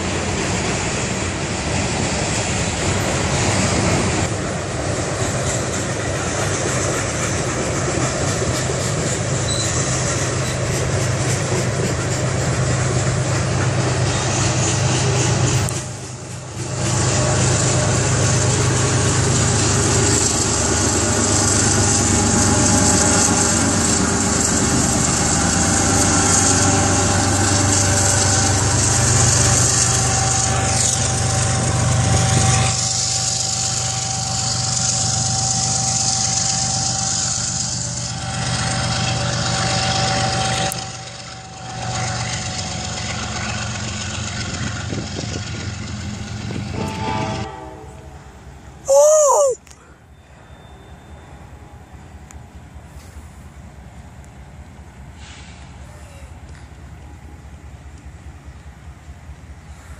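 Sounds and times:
diesel locomotive engine hum: 0.0s - 59.9s
train wheel and rail noise: 0.0s - 59.9s.

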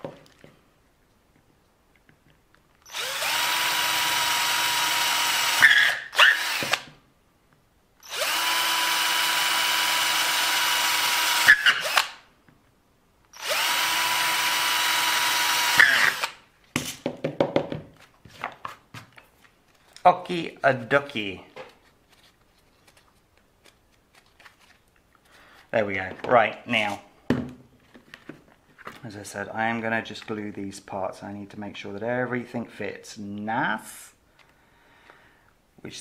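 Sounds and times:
small electric drill running: 2.8s - 6.9s, 8.0s - 12.2s, 13.4s - 16.4s.

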